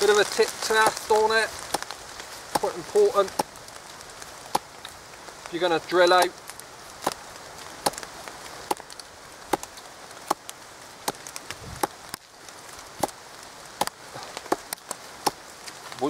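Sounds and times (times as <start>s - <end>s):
wood cracking under knife tip: 0.0s - 5.0s, 6.1s - 12.3s.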